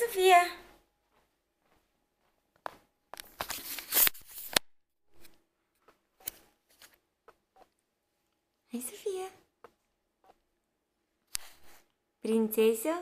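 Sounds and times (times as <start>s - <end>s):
camera handling rustling: 3.2s - 5.3s.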